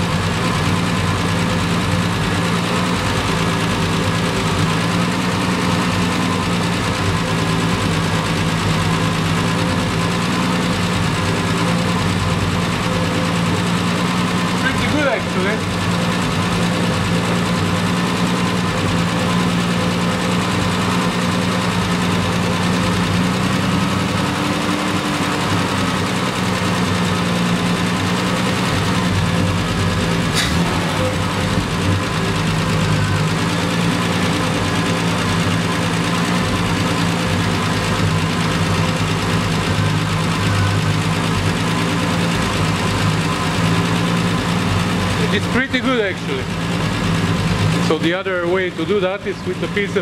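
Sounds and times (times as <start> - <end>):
car engine idling: 0.0 - 50.0
sharp click: 30.3 - 30.6.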